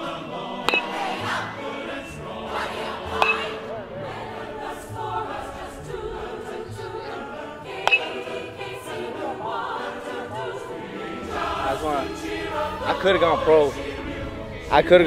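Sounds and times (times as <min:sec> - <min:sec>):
choral music: 0:00.0 - 0:15.0
metal bat pinging ball: 0:00.6 - 0:01.1, 0:03.1 - 0:03.6, 0:07.8 - 0:08.2.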